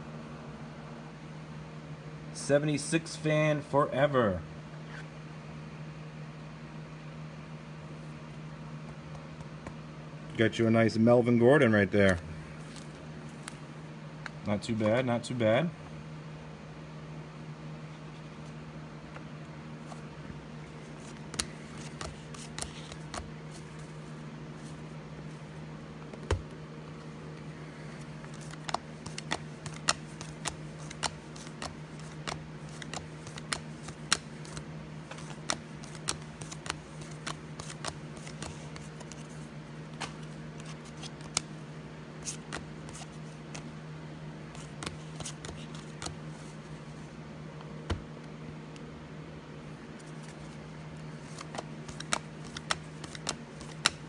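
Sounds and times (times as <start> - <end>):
steady low hum: 0.0 - 54.0
cards snapping and sliding: 20.9 - 24.8, 27.8 - 41.6, 42.2 - 43.7, 44.5 - 46.8, 50.0 - 54.0.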